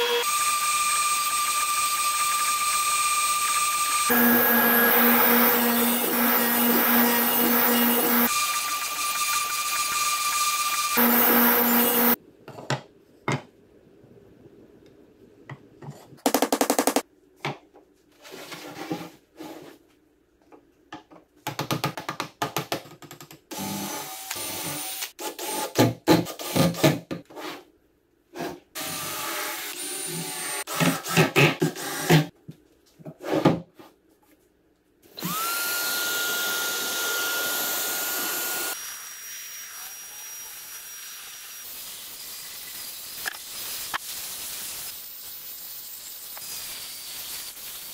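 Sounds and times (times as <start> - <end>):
cordless drill running: 0.0 - 12.2, 35.2 - 39.0.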